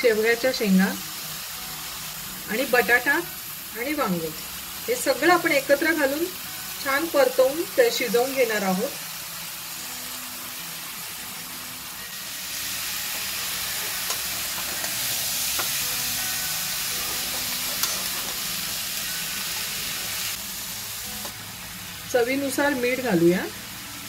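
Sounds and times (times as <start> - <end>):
vegetables sizzling in hot oil: 0.0 - 24.0
metal spatula stirring: 17.0 - 18.4.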